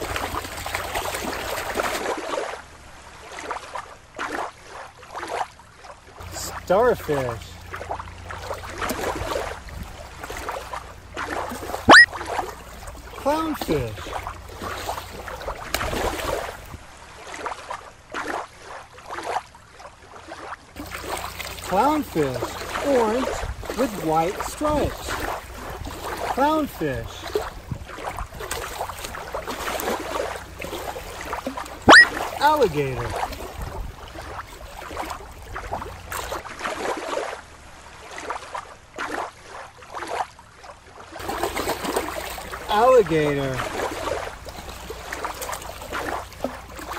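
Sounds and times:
soft water swishes: 0:00.0 - 0:46.9
waves lapping on rocks: 0:00.0 - 0:46.9.

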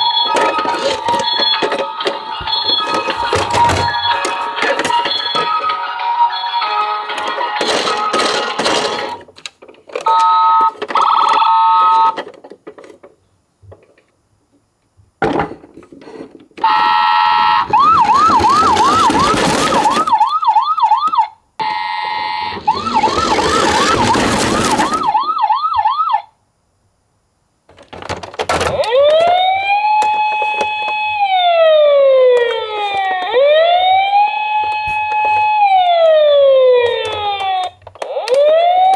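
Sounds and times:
toy siren horn blasts: 0:16.6 - 0:20.1, 0:21.0 - 0:26.2
yelping electronic siren: 0:16.7 - 0:26.3, 0:28.8 - 0:38.9.

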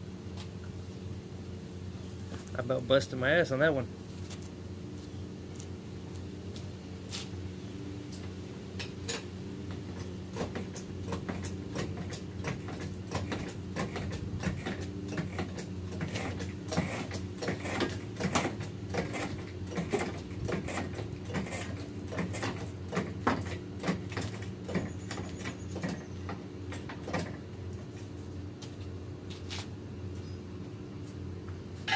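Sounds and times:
steady low hum: 0:00.0 - 0:31.9.

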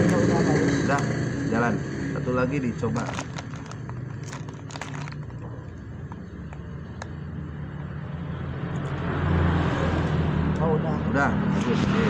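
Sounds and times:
engine humming: 0:00.0 - 0:09.4.

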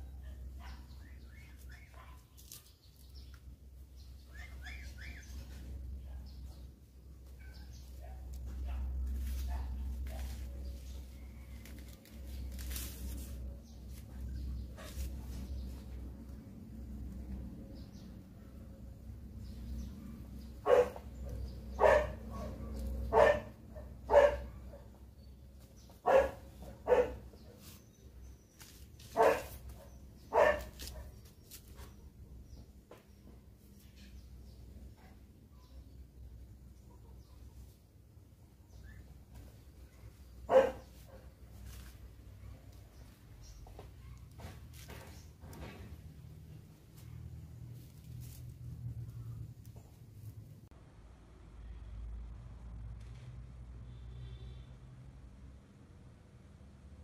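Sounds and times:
bird chirping: 0:00.1 - 0:08.4
dog barking: 0:00.2 - 0:01.0, 0:01.8 - 0:02.3, 0:07.4 - 0:10.3, 0:20.6 - 0:25.0, 0:26.0 - 0:27.7, 0:29.2 - 0:31.2, 0:40.5 - 0:41.3
corn husks crackling: 0:08.3 - 0:15.4.

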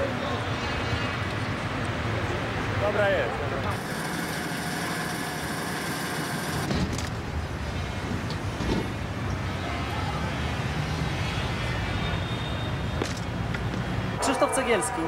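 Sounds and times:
lift platform motor hum: 0:03.7 - 0:06.7.

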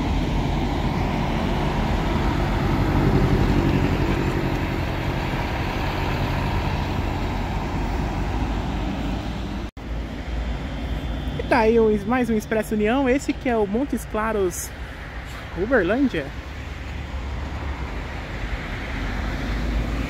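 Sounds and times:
bus diesel engine running: 0:00.0 - 0:20.0.

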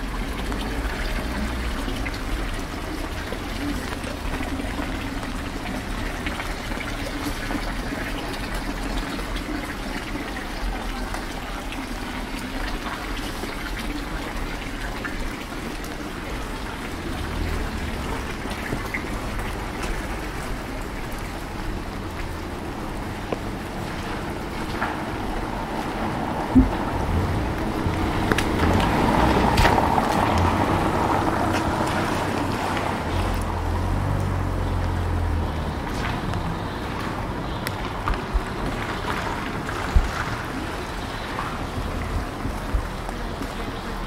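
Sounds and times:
steady rain: 0:00.0 - 0:44.0
water trickling and splashing: 0:00.0 - 0:44.0
drops ticking: 0:26.5 - 0:30.5.

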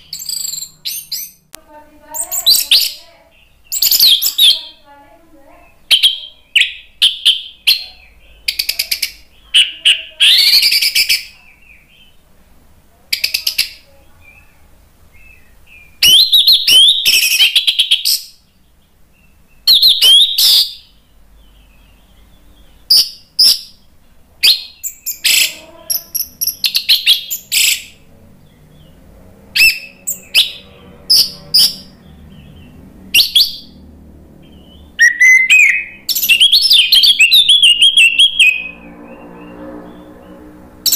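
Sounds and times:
bird whistling and trilling: 0:00.0 - 0:01.4, 0:02.2 - 0:03.0, 0:03.7 - 0:04.7, 0:05.8 - 0:12.1, 0:15.3 - 0:18.4, 0:19.6 - 0:20.9, 0:22.9 - 0:23.8, 0:24.4 - 0:28.0, 0:29.6 - 0:31.9, 0:33.2 - 0:33.8, 0:34.6 - 0:38.8.

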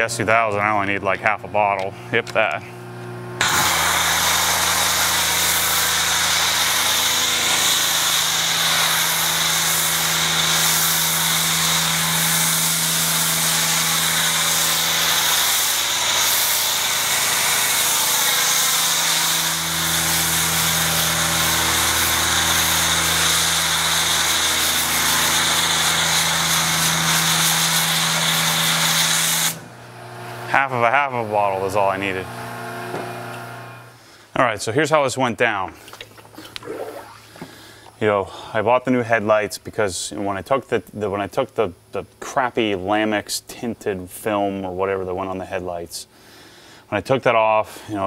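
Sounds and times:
pressure washer hum: 0:01.1 - 0:34.2
foam cannon spraying hiss: 0:03.4 - 0:29.6.

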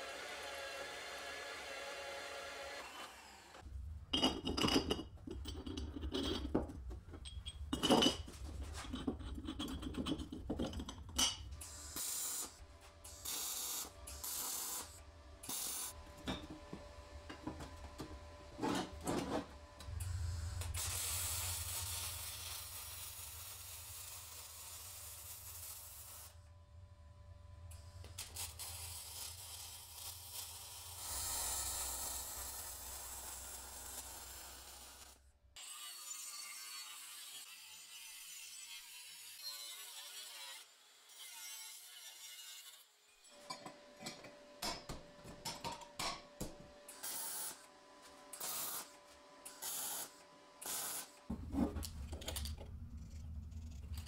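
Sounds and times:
steel pieces knocking and scraping: 0:04.1 - 0:11.6, 0:43.4 - 0:46.5
welding hiss: 0:11.6 - 0:16.0, 0:20.2 - 0:26.4, 0:28.2 - 0:35.0, 0:48.4 - 0:48.9, 0:49.5 - 0:51.2.

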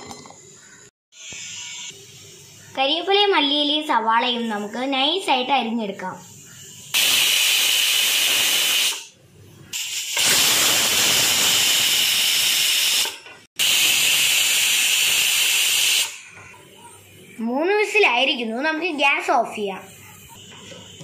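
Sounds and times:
pressure cooker whistling: 0:01.1 - 0:02.3, 0:06.4 - 0:09.1, 0:09.7 - 0:16.3.

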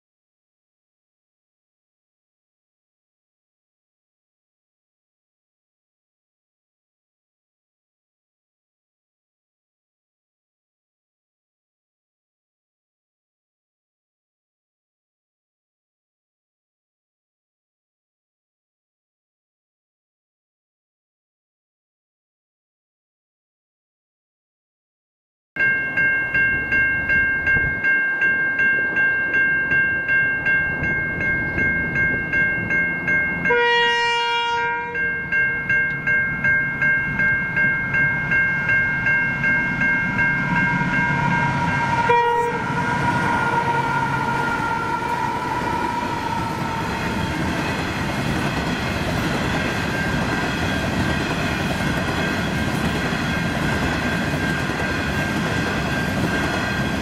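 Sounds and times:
level crossing bells ringing: 0:25.6 - 0:33.8, 0:34.8 - 0:42.0
train wagons rumbling past: 0:25.6 - 0:57.0
locomotive horn blast: 0:33.5 - 0:35.2, 0:40.4 - 0:47.5.

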